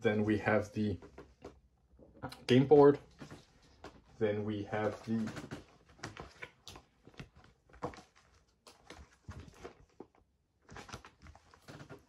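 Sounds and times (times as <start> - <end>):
cardboard and paper rustling: 3.0 - 12.0.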